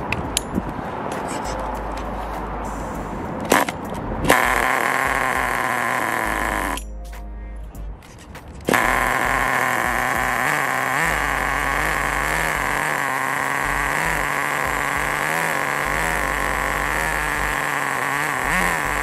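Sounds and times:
small two-stroke engine running: 3.5 - 6.8, 8.7 - 19.0.

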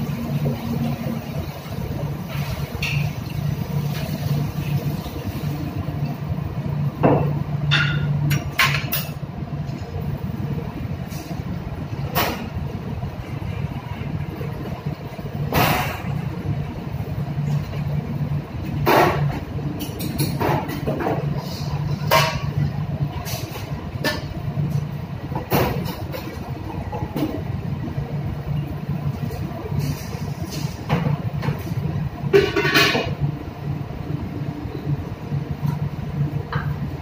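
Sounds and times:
low machinery hum: 0.0 - 37.0
pots and ladle clattering: 2.3 - 4.5, 18.8 - 24.3, 32.3 - 33.2.

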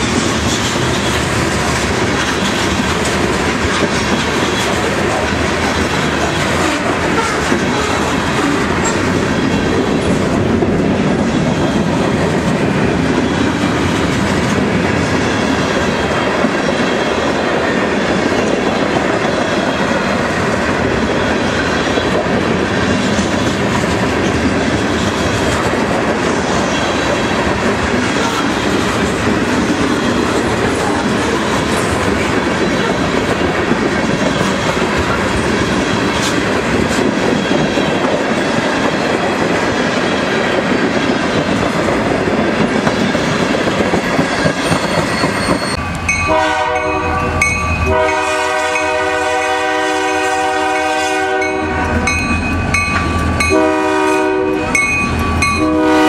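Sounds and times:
train wheels rumbling on rail: 0.0 - 56.0
locomotive chime horn blasts: 45.8 - 56.0.

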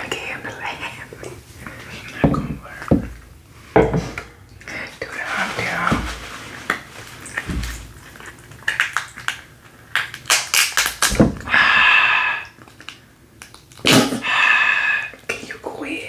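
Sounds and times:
shellfish shells cracking: 6.7 - 11.5, 12.5 - 14.0.

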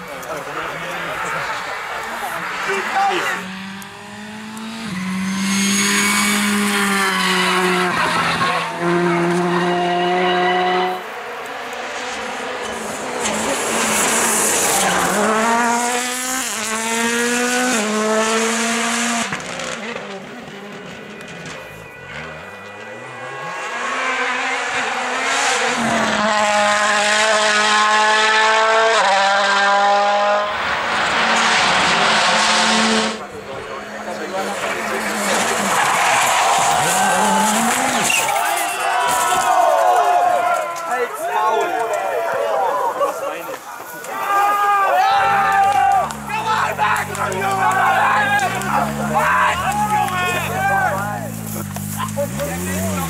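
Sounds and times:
rally car engine at high revs: 0.0 - 38.4, 45.3 - 53.0
tyres hissing on gravel: 47.8 - 53.0.

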